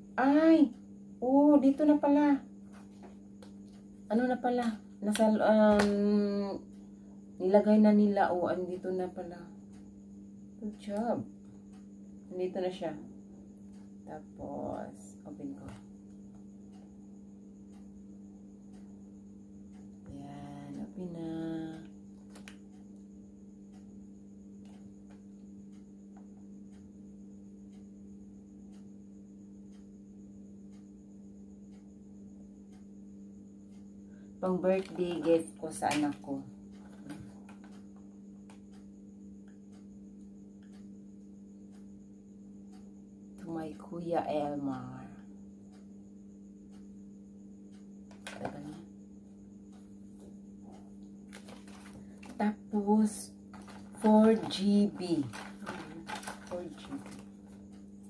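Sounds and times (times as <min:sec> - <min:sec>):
faint ticking: 0:00.0 - 0:58.0
steady low hum: 0:00.0 - 0:58.0
soft handling sound: 0:51.3 - 0:52.4, 0:53.5 - 0:54.6, 0:55.2 - 0:57.6.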